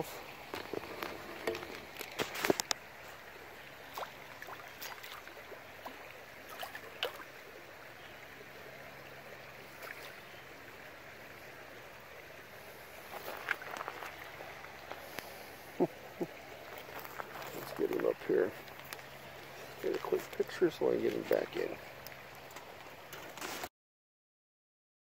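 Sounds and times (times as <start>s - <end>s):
creek water running: 0.0s - 23.7s
fish thrashing and splashing: 0.5s - 7.4s, 13.0s - 23.6s.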